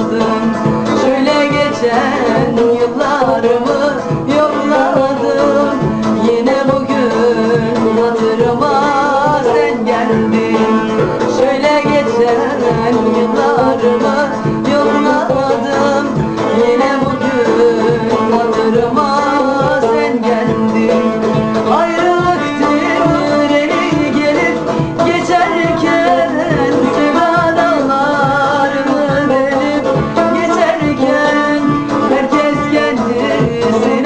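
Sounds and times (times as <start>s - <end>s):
plucked lute: 0.0s - 34.0s
woman singing with vibrato: 0.0s - 34.0s.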